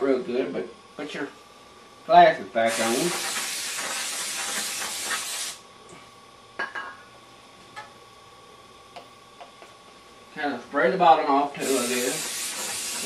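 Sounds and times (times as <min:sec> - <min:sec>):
aerosol spray can hissing: 0:02.7 - 0:05.6, 0:11.6 - 0:13.0.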